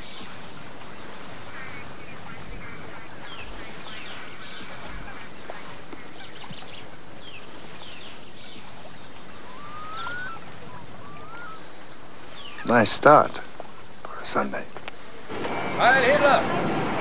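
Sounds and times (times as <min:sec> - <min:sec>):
steady hiss: 0:00.0 - 0:17.0
rising whistled bird call: 0:09.3 - 0:11.9.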